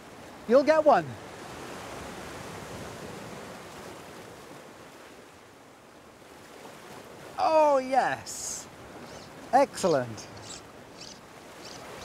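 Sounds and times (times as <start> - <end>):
sea surf washing against rocks: 6.2 - 12.0.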